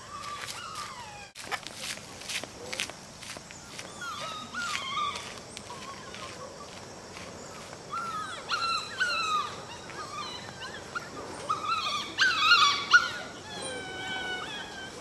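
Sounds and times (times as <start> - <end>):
puppy whimpering: 0.0 - 1.4, 3.8 - 6.4, 7.9 - 15.0.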